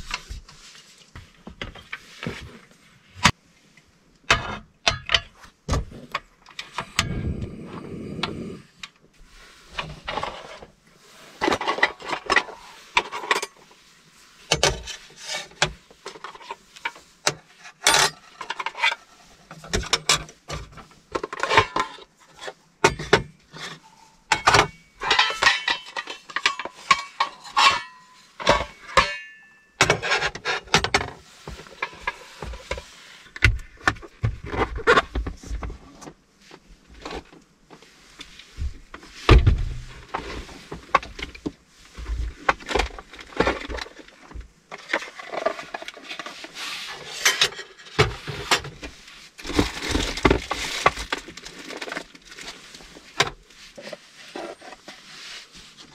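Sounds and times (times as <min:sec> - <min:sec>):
utensils clinking on metal table: 0:24.4 - 0:30.1.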